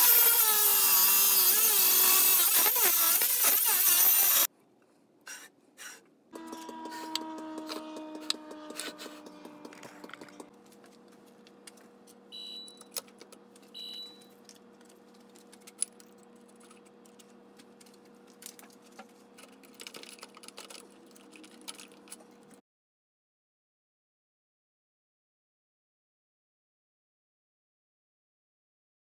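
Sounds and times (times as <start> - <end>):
short high beeps: 12.4 - 12.9.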